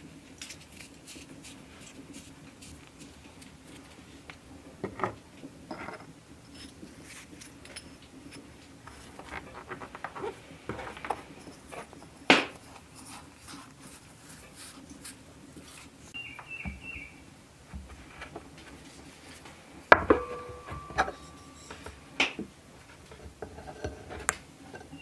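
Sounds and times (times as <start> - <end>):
pastry cutter scraping dough: 22.9 - 25.0.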